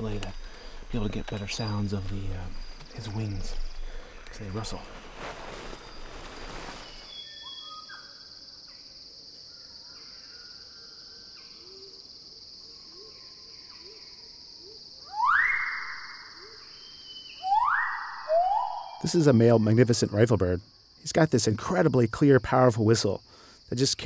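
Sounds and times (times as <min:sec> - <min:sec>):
high insect drone: 0:00.0 - 0:24.0
faint bird calls: 0:12.7 - 0:19.1.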